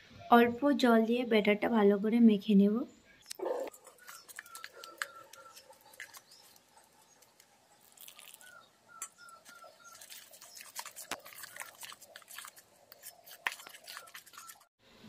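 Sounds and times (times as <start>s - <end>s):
spoon mashing wet batter: 3.6s - 14.7s.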